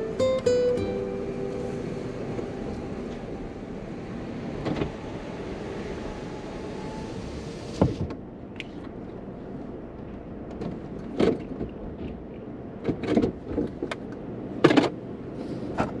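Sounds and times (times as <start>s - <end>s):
low steady hum: 0.0s - 16.0s
knocks and rustles in car: 4.6s - 5.0s, 7.8s - 9.0s, 10.4s - 15.0s.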